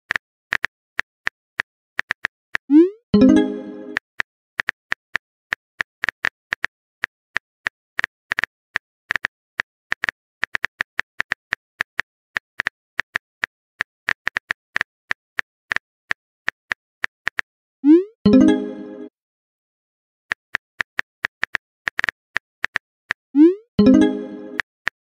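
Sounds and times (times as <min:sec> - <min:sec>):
keyboard typing clicks: 0:02.0 - 0:04.8, 0:23.4 - 0:24.7.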